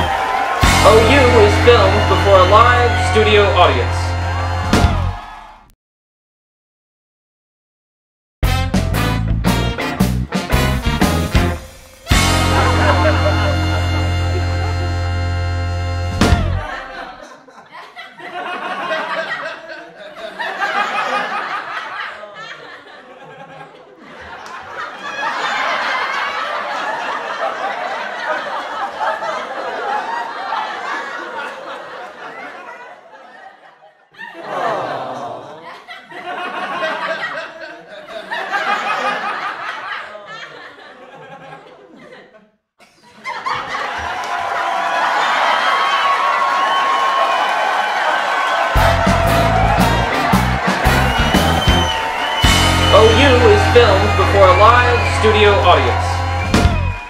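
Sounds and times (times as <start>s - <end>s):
studio audience laughing: 0.0s - 4.6s, 11.6s - 15.4s, 16.4s - 57.0s
crowd noise: 0.0s - 5.7s, 8.9s - 33.5s, 43.0s - 57.0s.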